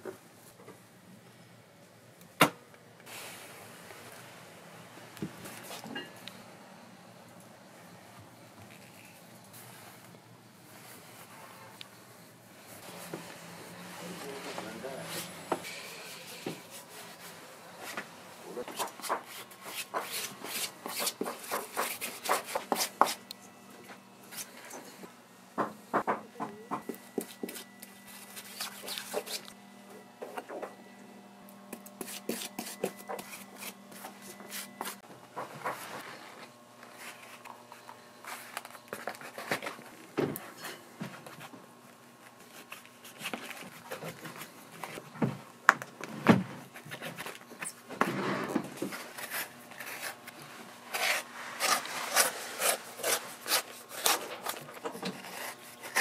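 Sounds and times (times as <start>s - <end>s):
tools scraping leather boot: 27.2s - 29.5s, 50.9s - 56.0s.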